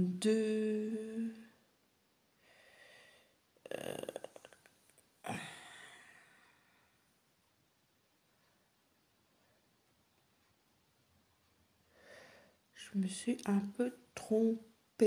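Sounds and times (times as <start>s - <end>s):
breathing: 2.4s - 3.4s, 5.4s - 7.0s, 11.8s - 12.7s.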